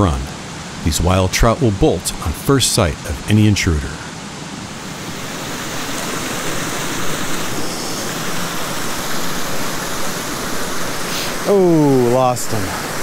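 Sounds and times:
stream running over rocks: 0.0s - 13.0s.

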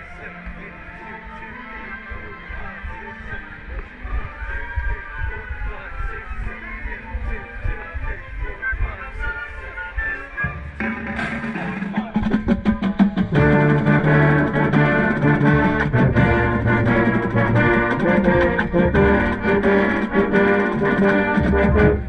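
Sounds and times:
euphonium playing close: 0.0s - 22.0s
marching band playing: 6.2s - 22.0s.

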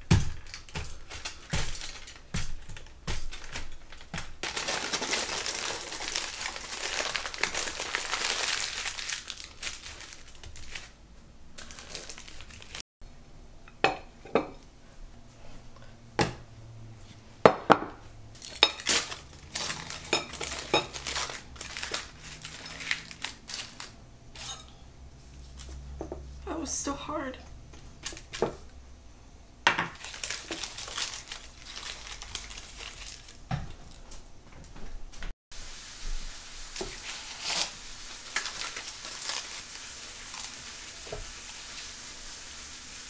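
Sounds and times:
utensils clinking on dishes: 18.4s - 23.7s, 24.4s - 24.8s.

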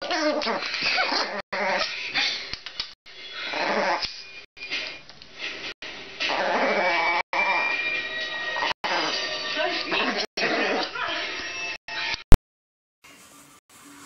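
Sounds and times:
puppy whining: 6.3s - 9.2s.

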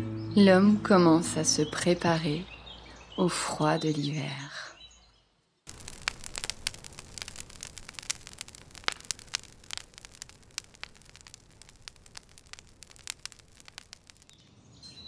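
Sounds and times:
wood fire crackling and popping: 5.7s - 14.4s
low hiss of fire: 5.7s - 14.8s.

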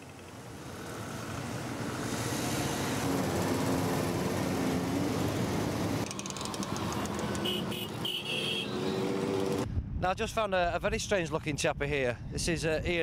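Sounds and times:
motorcycles riding past: 0.0s - 9.6s.

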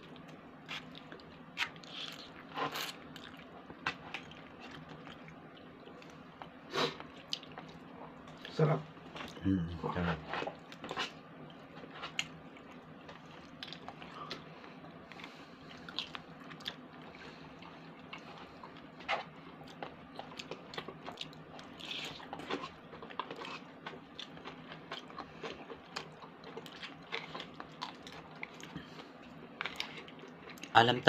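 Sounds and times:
person chewing: 0.1s - 8.5s, 10.3s - 30.7s.

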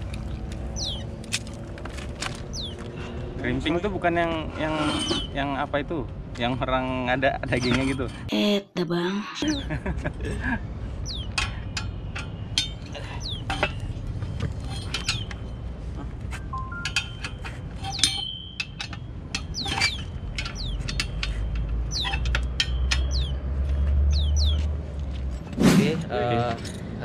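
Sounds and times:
bird chirping: 0.7s - 1.2s, 2.5s - 2.8s, 11.0s - 11.4s, 12.3s - 13.8s, 14.6s - 15.6s, 17.8s - 24.7s.

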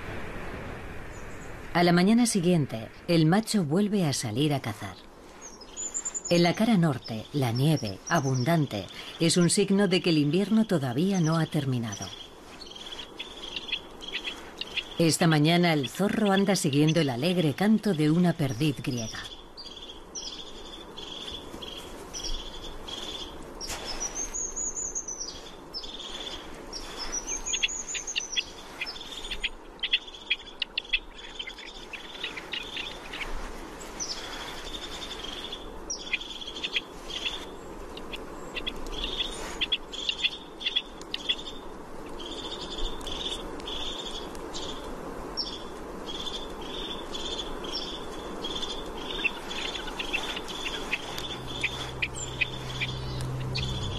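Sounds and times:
partridge calling: 11.3s - 17.5s, 18.5s - 33.3s, 34.0s - 41.6s, 45.4s - 53.9s.

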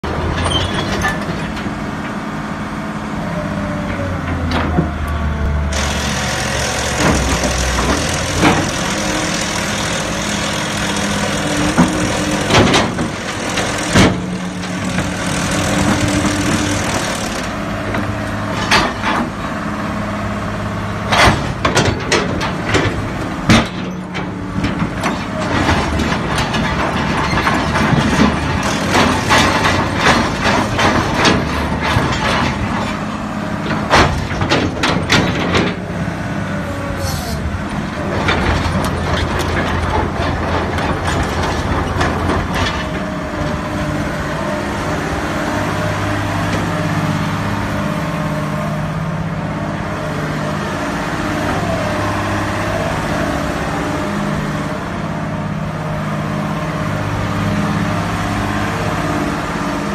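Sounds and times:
excavator diesel engine running: 0.0s - 59.9s
metallic clanks and knocks: 21.1s - 35.9s.

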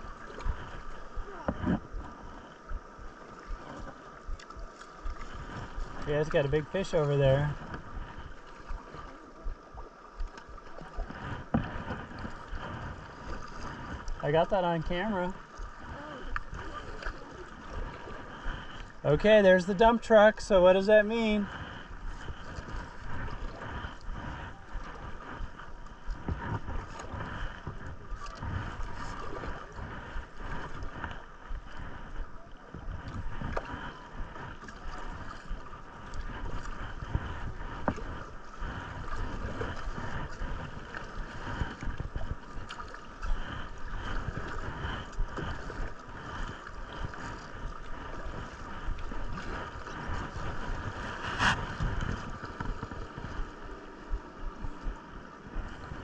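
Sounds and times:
river water rushing: 12.6s - 25.4s
wind buffeting microphone: 21.4s - 56.0s.

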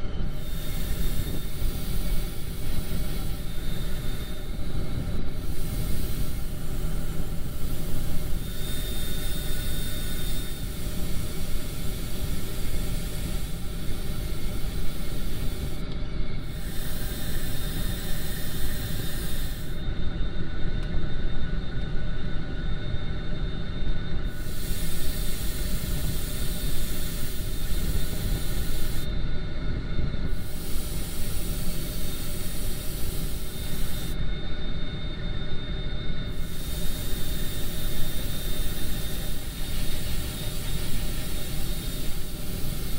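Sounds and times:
low machine drone: 0.0s - 42.9s
airbrush spraying paint: 0.3s - 15.8s, 16.4s - 19.8s, 24.3s - 29.1s, 30.3s - 34.2s, 36.3s - 42.9s.

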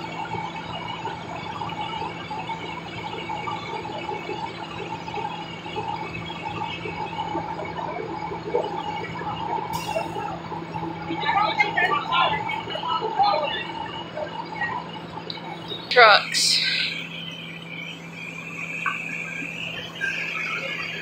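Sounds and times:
steady mechanical motor hum: 0.0s - 21.0s.

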